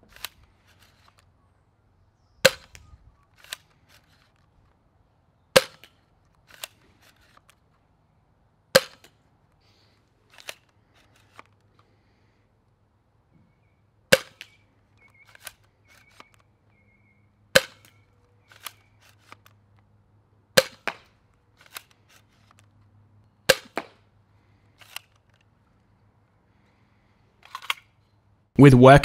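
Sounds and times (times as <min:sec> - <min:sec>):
blaster handling clicks: 0:02.4 - 0:04.8, 0:05.6 - 0:07.8, 0:10.3 - 0:11.9, 0:14.1 - 0:16.9, 0:17.6 - 0:19.9, 0:20.6 - 0:26.0, 0:27.4 - 0:28.1.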